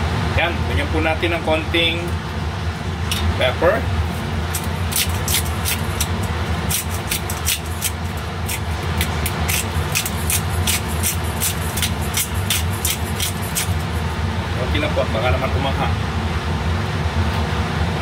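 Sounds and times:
steady low hum: 0.0s - 18.0s
pepper grinder cracking peppercorns: 4.5s - 14.1s.

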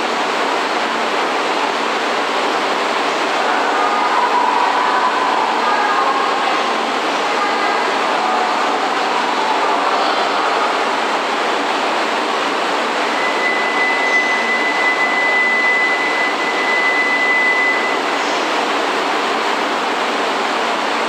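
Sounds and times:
thin high steady tone: 13.0s - 18.2s.

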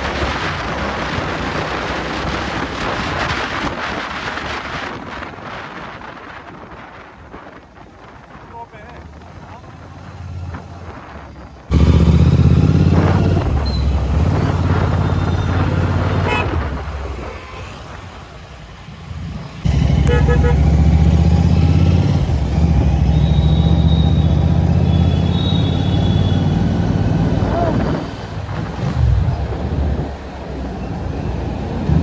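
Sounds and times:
wind noise: 0.0s - 18.4s, 26.2s - 32.0s
motorcycle engine rumble: 0.0s - 32.0s
short horn toots: 20.0s - 20.6s.

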